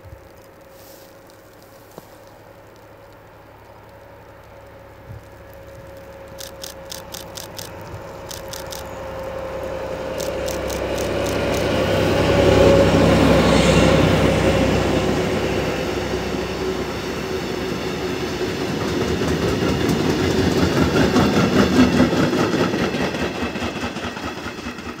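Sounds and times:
diesel locomotive engine: 0.6 - 25.0
train wheels clickety-clack: 10.1 - 11.8, 17.0 - 25.0.

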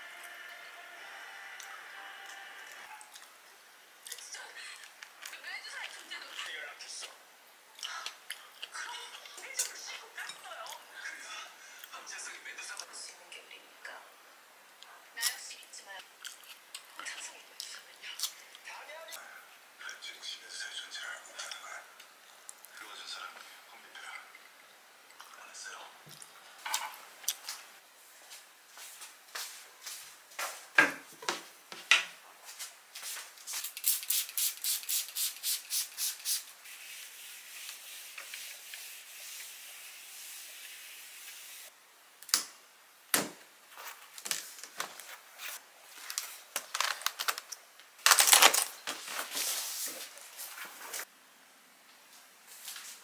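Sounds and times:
steady hiss: 32.4 - 44.0.

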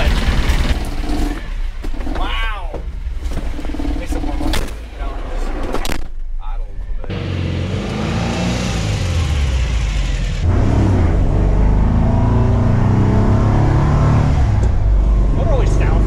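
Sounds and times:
van engine accelerating: 7.0 - 16.0.

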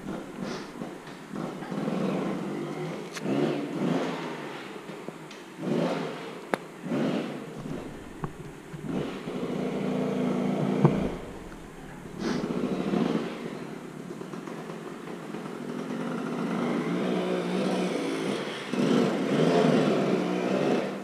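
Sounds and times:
dirt bike engine revving: 0.0 - 5.0, 5.6 - 21.0
sharp knock: 10.8 - 13.2.

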